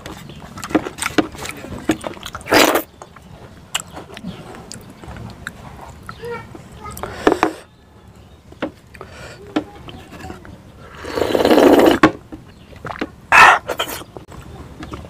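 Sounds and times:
lip smacks and clicks: 0:00.0 - 0:06.3
person slurping from a plate: 0:02.4 - 0:02.9, 0:10.8 - 0:12.0, 0:13.4 - 0:14.1.

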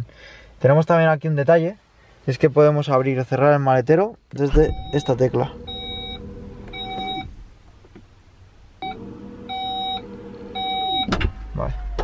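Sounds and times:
sharp thump: 0:04.5 - 0:05.0
short warning beeps: 0:04.5 - 0:06.2
tailgate motor humming: 0:04.5 - 0:07.5, 0:08.8 - 0:11.4.

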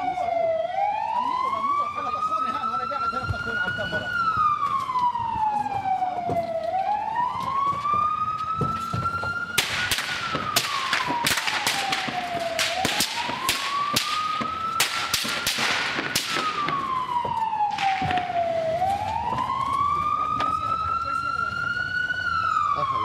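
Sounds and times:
ambulance siren wailing: 0:00.0 - 0:23.0
sharp cracks and rattles: 0:09.5 - 0:17.1, 0:17.7 - 0:18.4.

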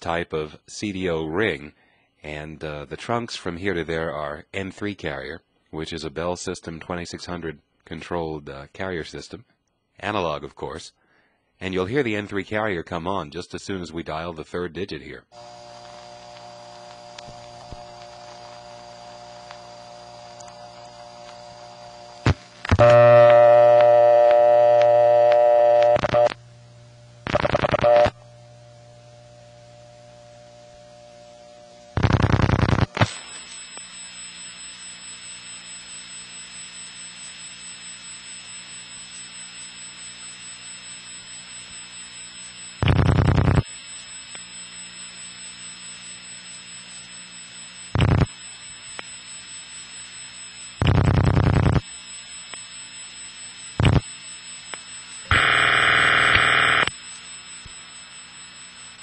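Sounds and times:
telephone line hiss and hum: 0:15.2 - 0:59.0
buzzy dial tone: 0:15.3 - 0:59.0
rotary dial pulse clicking: 0:15.4 - 0:23.9, 0:44.1 - 0:59.0.

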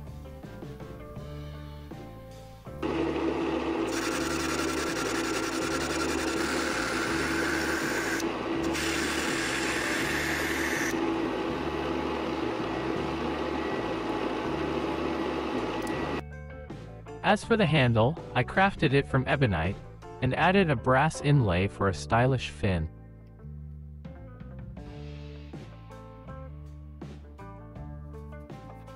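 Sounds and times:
background music with steady beat: 0:00.0 - 0:02.8, 0:10.9 - 0:18.5, 0:23.0 - 0:28.9
power tool cutting material: 0:02.8 - 0:11.0
power tool motor humming: 0:02.8 - 0:16.2.

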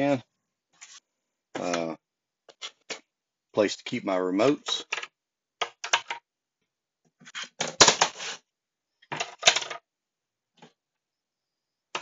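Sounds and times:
plastic remotes clattering on wood: 0:04.8 - 0:06.2, 0:09.1 - 0:09.8.

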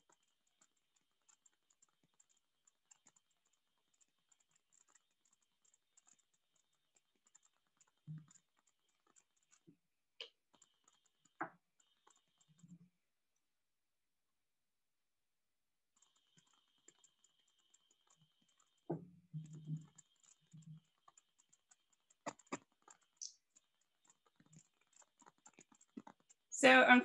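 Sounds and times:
faint rapid clicking: 0:00.0 - 0:12.8, 0:15.9 - 0:27.0.

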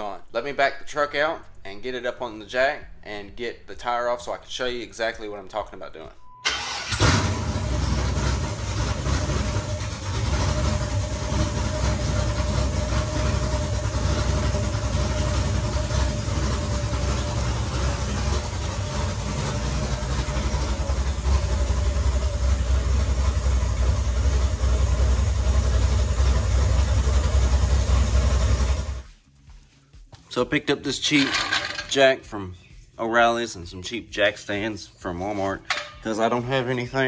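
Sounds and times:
truck engine idling: 0:06.5 - 0:29.1.

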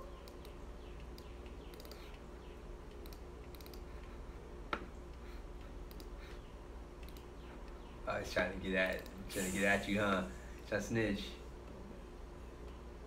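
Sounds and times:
low steady hum: 0:00.0 - 0:13.0
computer mouse clicks: 0:00.2 - 0:02.2, 0:02.8 - 0:06.2, 0:07.0 - 0:07.8, 0:08.8 - 0:09.2.

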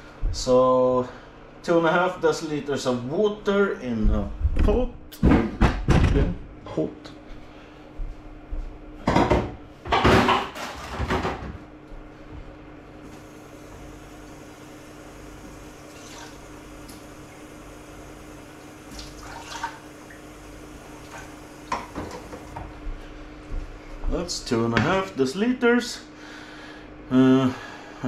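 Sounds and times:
faint hum: 0:00.0 - 0:28.0
small kitchen clinks: 0:09.0 - 0:11.6
water running from tap: 0:13.0 - 0:22.6.

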